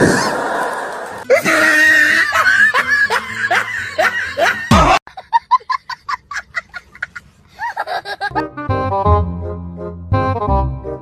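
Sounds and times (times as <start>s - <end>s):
person laughing: 1.3s - 8.6s
short musical notes: 8.3s - 11.0s.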